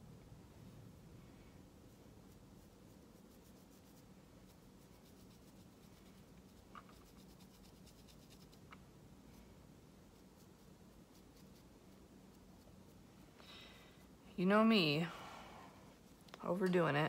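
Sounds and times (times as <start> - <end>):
faint steady hum: 0.0 - 17.0
brush scratching: 1.8 - 13.4.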